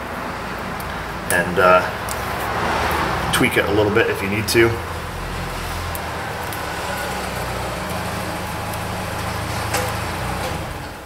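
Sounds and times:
engine droning: 0.0 - 11.0.

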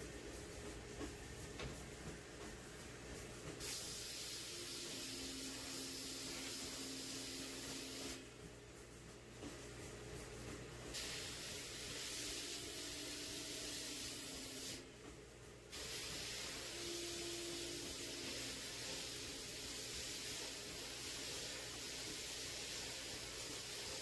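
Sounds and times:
abrasive blasting hiss: 3.6 - 8.2, 11.0 - 14.8, 15.7 - 24.0.

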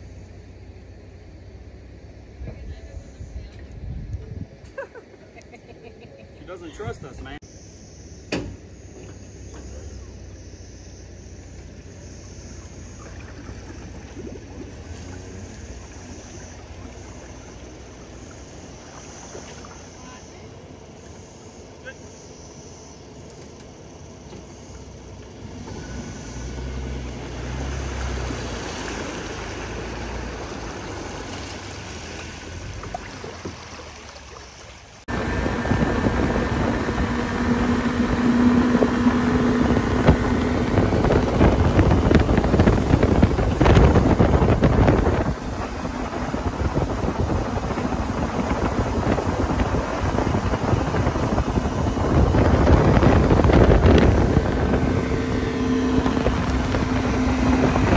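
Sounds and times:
motorboat outboard engine: 0.0 - 57.9
wind buffeting microphone: 2.5 - 4.6, 35.1 - 57.9
water rushing past hull: 11.4 - 22.1, 24.6 - 57.9.

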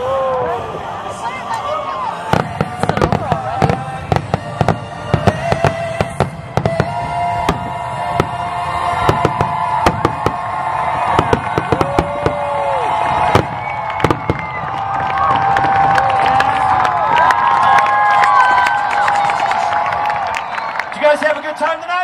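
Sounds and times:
fireworks bursting: 2.2 - 16.8.

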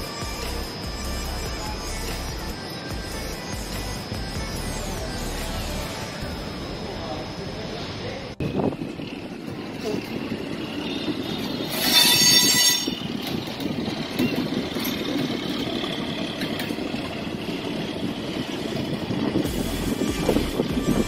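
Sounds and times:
high-pitched tone: 0.0 - 13.2
train wheels rumbling: 8.4 - 21.0
wind rush: 8.4 - 21.0.

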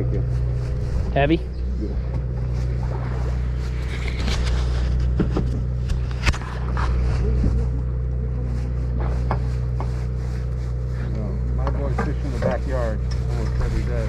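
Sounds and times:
boat engine humming: 0.0 - 14.0.

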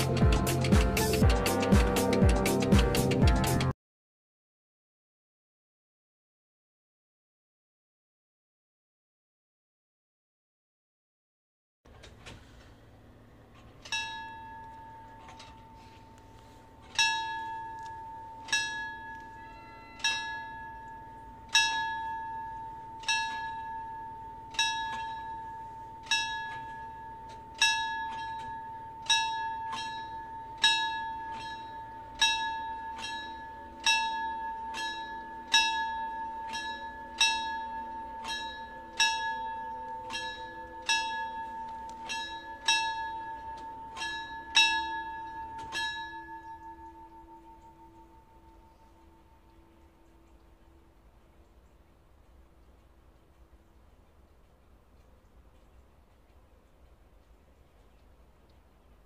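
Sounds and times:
level-crossing warning bell: 13.1 - 54.4.

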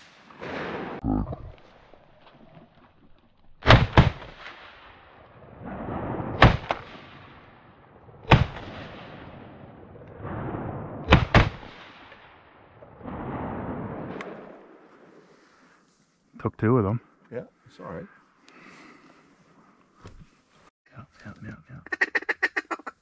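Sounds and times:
shotgun shots: 3.6 - 5.1, 6.1 - 7.5, 8.2 - 9.7, 11.0 - 12.5.

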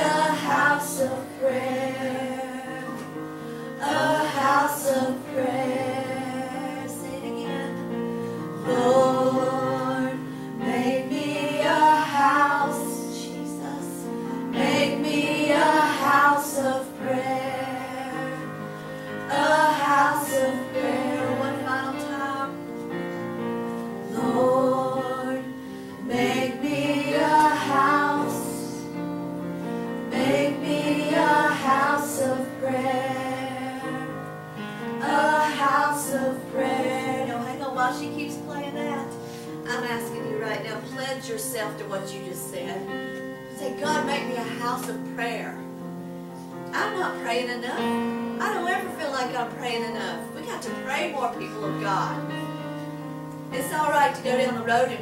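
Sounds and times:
woman singing gospel: 0.0 - 3.1, 3.8 - 7.9, 8.6 - 18.6, 19.2 - 22.6, 24.1 - 29.0, 30.1 - 34.3, 35.0 - 39.1, 53.5 - 55.0
sustained keyboard chords: 0.0 - 55.0.

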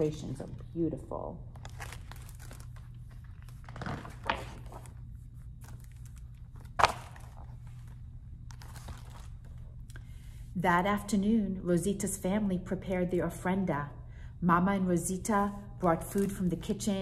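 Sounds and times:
low room hum: 0.0 - 17.0
book pages rustling: 1.6 - 9.8.

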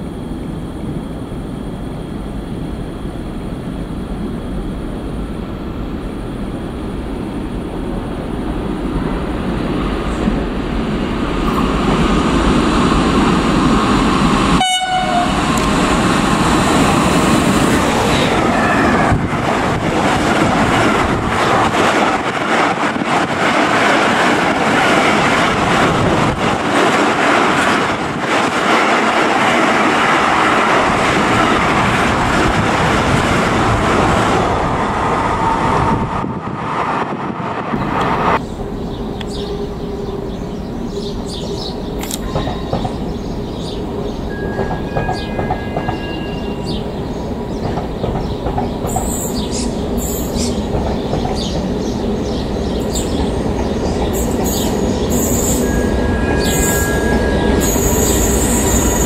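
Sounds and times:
freight train passing: 0.0 - 59.0
train wheels clattering: 47.5 - 59.0.

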